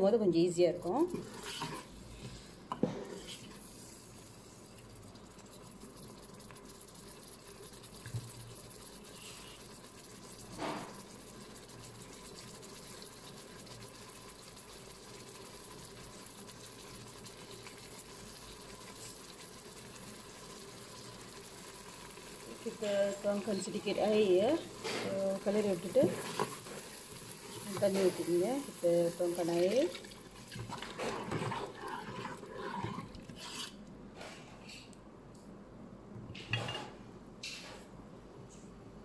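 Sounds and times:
faint steady bubbling: 0.0 - 34.2.

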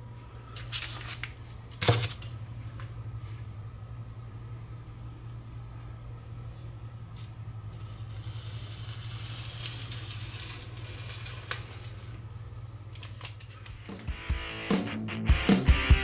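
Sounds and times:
steady low hum: 0.0 - 14.7
paper banknotes rustling on wood: 0.5 - 2.4, 7.1 - 14.0.

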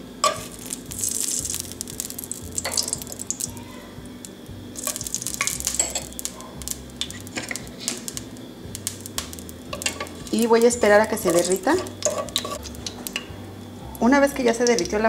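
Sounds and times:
lard sizzling: 0.0 - 15.0
spoon scraping clay pot: 9.7 - 13.3.

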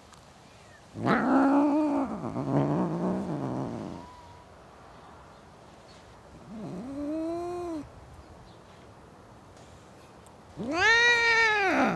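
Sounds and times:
cats yowling and growling: 1.0 - 4.5, 6.4 - 7.9, 10.6 - 11.9.

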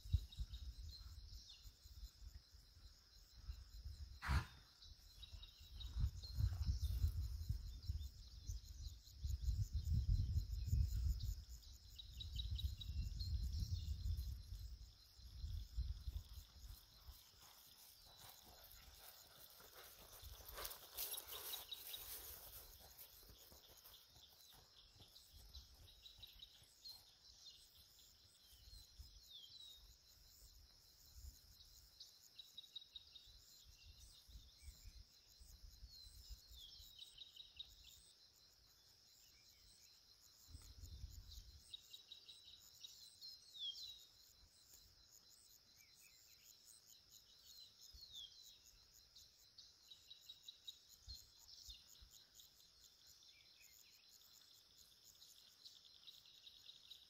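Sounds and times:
high insect trill: 0.0 - 57.0
birds chirping: 0.1 - 9.1, 10.9 - 30.4.

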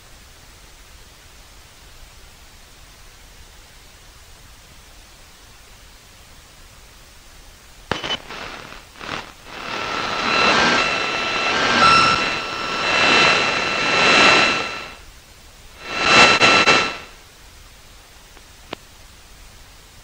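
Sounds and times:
radio static hiss: 7.9 - 15.0, 15.8 - 17.2
steady whistle tones: 7.9 - 15.0.

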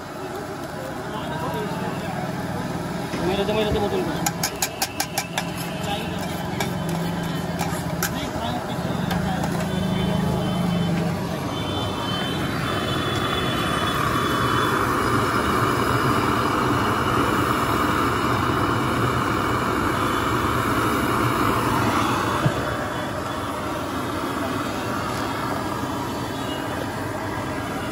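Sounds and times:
traffic noise: 0.0 - 27.9.

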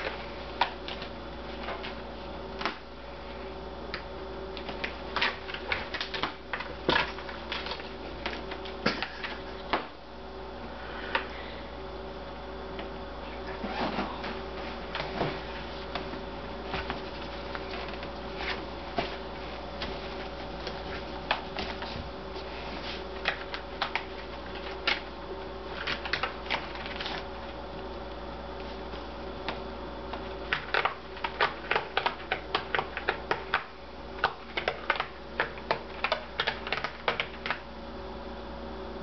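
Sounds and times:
cat claws scratching pad: 30.1 - 37.6.

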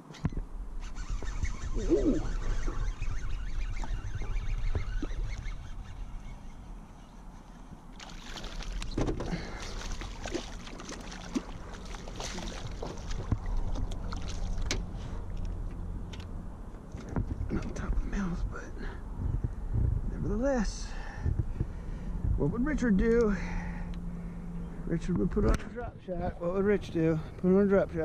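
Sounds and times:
fish splashing in water: 7.9 - 15.4.

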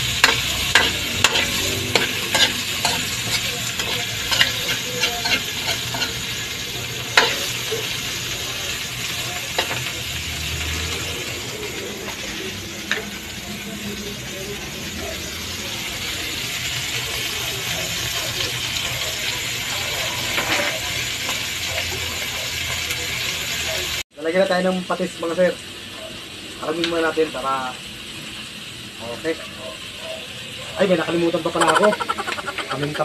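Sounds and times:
spoon clicking and scraping a pan: 0.0 - 6.2, 7.2 - 7.5
chicken sizzling in hot oil: 0.0 - 33.0.

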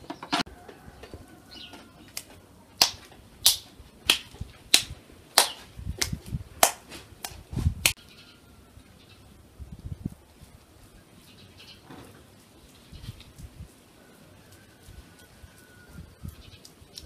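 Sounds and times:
wet hands slapping minced meat: 2.1 - 8.0.

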